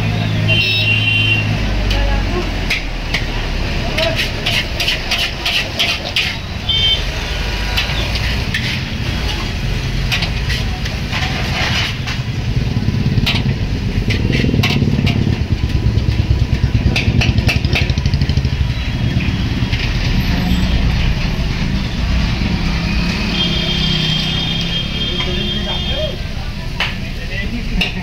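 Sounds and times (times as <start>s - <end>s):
metal spatula scraping wok: 2.7s - 17.9s.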